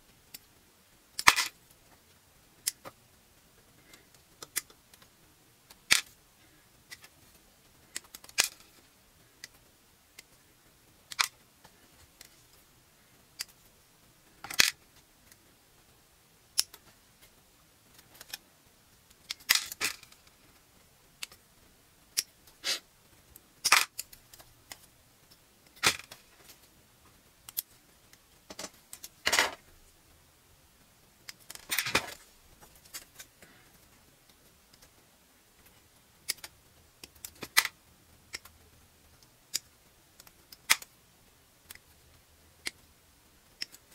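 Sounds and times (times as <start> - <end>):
plastic parts dropping into tub: 28.5 - 29.6.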